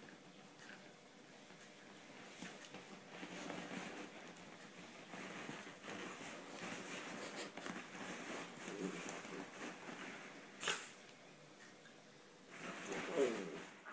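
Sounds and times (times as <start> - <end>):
puppy rustling on bean bag: 2.2 - 10.9, 12.5 - 13.9.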